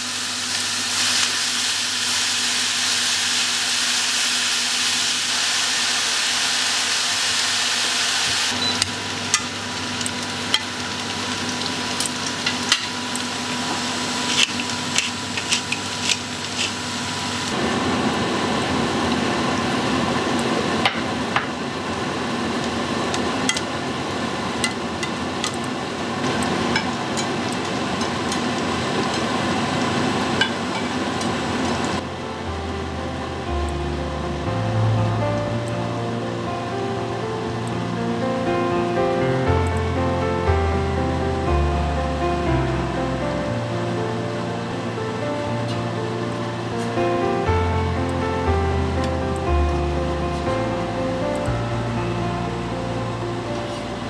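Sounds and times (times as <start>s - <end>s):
mushrooms sizzling in frying pan: 0.0s - 41.6s
chopsticks tapping and scraping pan: 13.7s - 16.8s.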